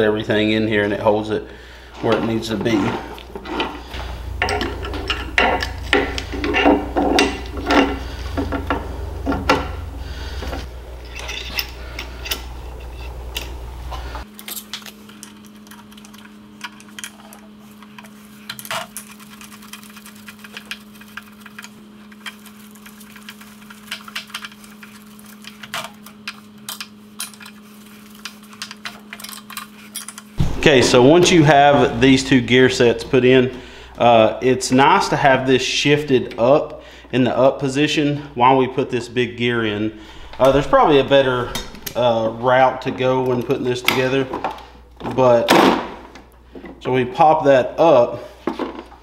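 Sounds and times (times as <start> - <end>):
steady hum: 0.0 - 49.0
metal parts clinking: 3.4 - 13.7, 14.4 - 30.4.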